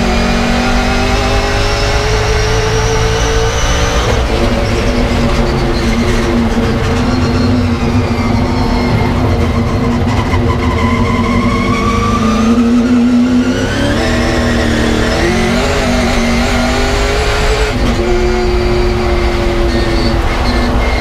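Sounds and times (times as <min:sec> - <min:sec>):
race car engine accelerating: 0:00.0 - 0:21.0.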